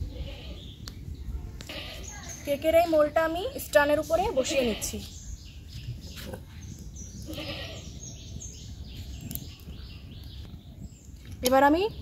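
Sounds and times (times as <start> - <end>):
goat bleating: 1.7 - 2.1, 7.3 - 7.9.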